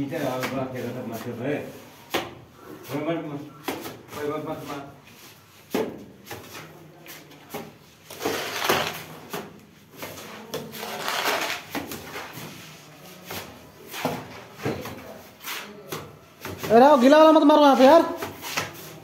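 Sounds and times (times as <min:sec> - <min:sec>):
steel trowel scraping plaster: 0:08.1 - 0:09.1, 0:10.6 - 0:11.8.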